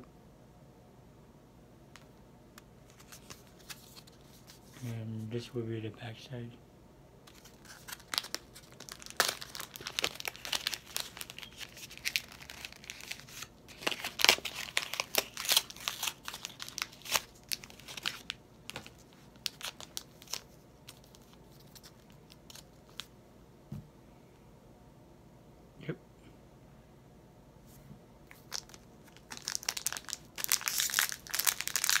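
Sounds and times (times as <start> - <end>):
plastic packaging tearing and crinkling: 7.3 - 23.1, 28.3 - 32.0.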